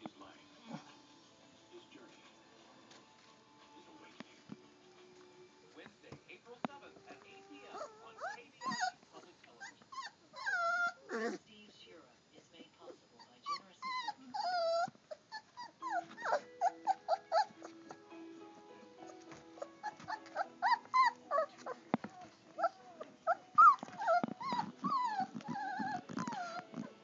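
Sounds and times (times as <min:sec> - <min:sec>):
puppies whimpering and yipping: 0:07.6 - 0:09.0, 0:09.6 - 0:11.4, 0:13.3 - 0:18.1, 0:19.1 - 0:27.0.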